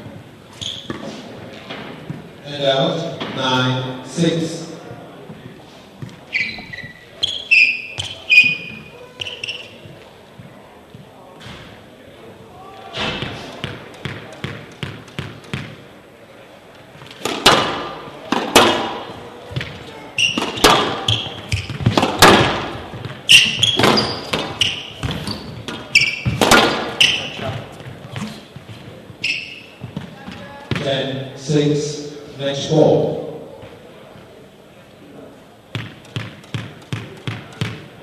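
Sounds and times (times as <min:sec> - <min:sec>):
shoes squeaking on court floor: 0:00.0 - 0:02.4, 0:05.2 - 0:11.8, 0:17.0 - 0:31.0
squash ball knocks: 0:17.2 - 0:28.2, 0:35.7 - 0:37.9.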